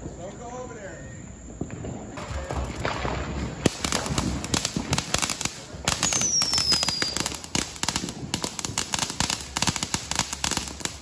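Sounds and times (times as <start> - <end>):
firework crackling pops: 1.6 - 11.0
firework spraying sparks: 2.3 - 11.0.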